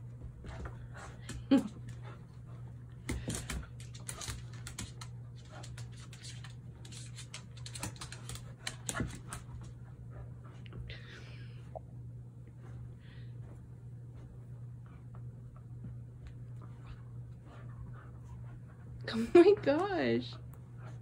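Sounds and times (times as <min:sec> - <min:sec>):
dog panting: 0:16.6 - 0:21.0.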